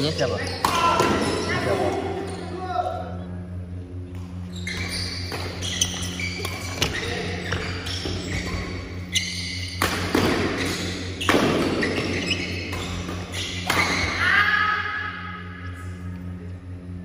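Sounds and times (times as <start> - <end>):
steady low hum: 0.0 - 17.0
sneakers squeaking on wooden floor: 0.1 - 2.5, 4.3 - 14.2.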